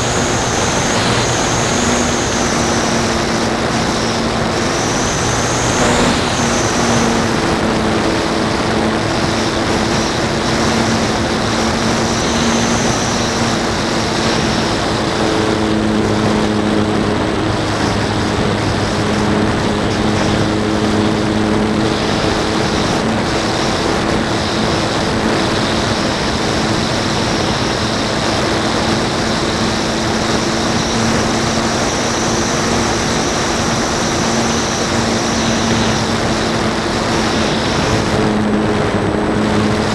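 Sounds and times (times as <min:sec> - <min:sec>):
model airplane motor whining: 0:00.0 - 0:39.9
wind rush on microphone: 0:00.0 - 0:39.9.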